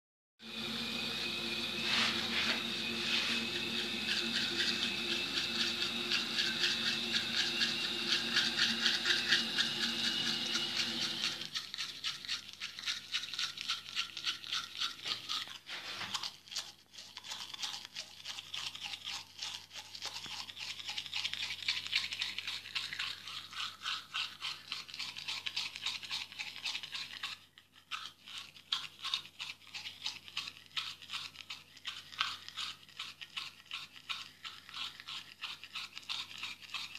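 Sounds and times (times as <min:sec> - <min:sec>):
steady hum with held tones: 0:00.4 - 0:11.5
toothbrush scrubbing teeth: 0:00.4 - 0:36.9.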